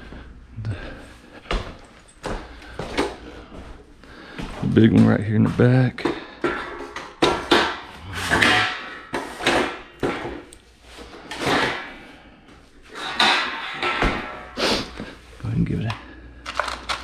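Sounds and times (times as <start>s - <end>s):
metal step ladder clanking: 4.9s - 10.6s, 12.9s - 15.1s.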